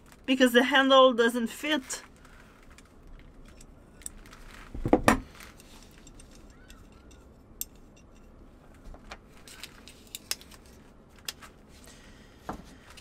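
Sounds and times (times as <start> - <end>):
small metal clicks and clinks: 5.6 - 8.3.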